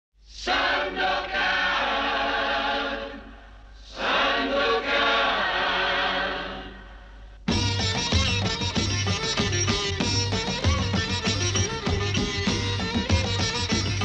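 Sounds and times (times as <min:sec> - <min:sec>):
choir chanting: 0:00.4 - 0:07.2.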